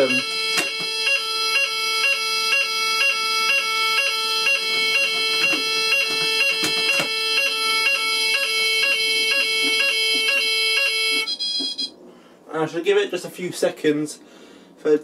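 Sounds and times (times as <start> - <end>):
fire alarm sounder: 0.0 - 12.0.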